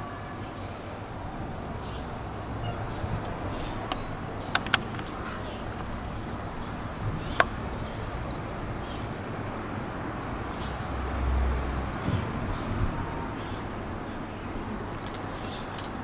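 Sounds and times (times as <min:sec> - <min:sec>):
sharp clicks: 0:03.2 - 0:08.3
bird chirps: 0:06.4 - 0:09.1.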